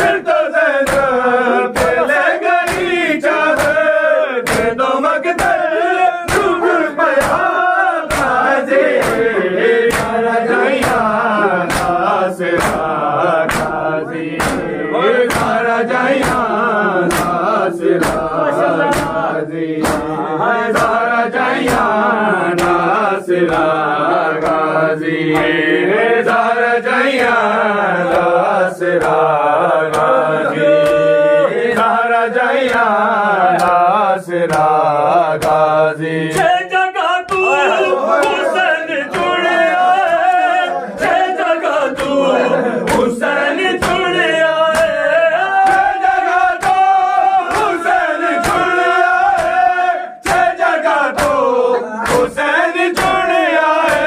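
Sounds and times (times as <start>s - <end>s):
man chanting a lament: 0.0s - 54.0s
hands striking chests: 1.8s - 2.9s, 9.9s - 10.2s, 10.8s - 12.0s, 14.4s - 14.7s, 16.2s - 16.5s, 17.1s - 17.4s, 18.0s - 19.2s, 19.8s - 20.2s.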